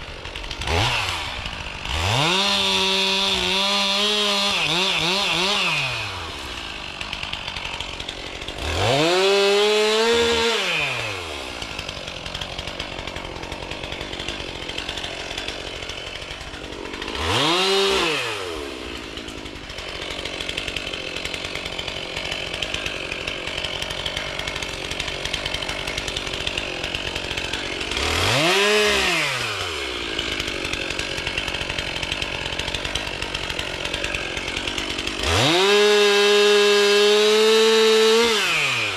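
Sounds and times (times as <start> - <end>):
chainsaw idling and revving: 0.0 - 38.9.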